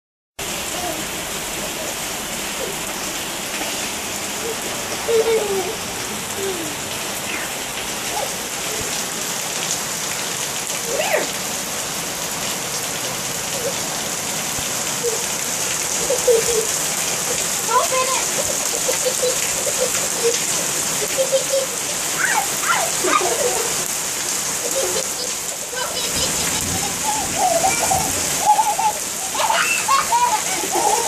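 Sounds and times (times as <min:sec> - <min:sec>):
heavy rain on pavement: 0:00.4 - 0:31.0
high gliding voice sounds: 0:04.4 - 0:08.8.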